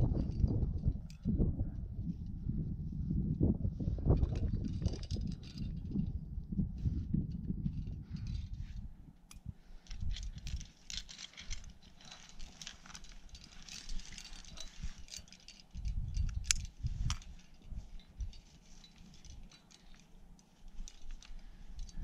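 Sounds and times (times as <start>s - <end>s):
nylon sling and rope rustling: 0.0s - 22.0s
metal carabiners clicking and jangling: 4.2s - 6.1s, 7.4s - 22.0s.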